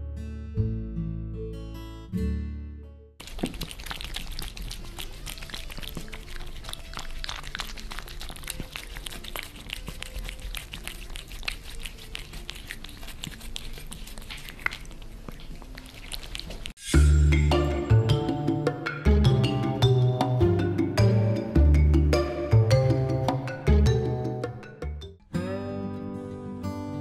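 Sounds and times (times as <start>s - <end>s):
cats licking and chewing: 3.2s - 16.8s.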